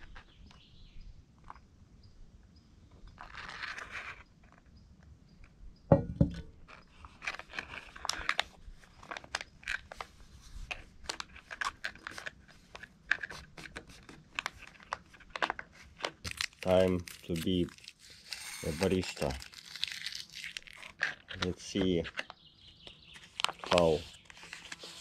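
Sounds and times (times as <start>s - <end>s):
pot knocking on wooden table: 5.9s - 6.5s
packaging crinkling: 10.7s - 21.6s, 23.1s - 25.0s.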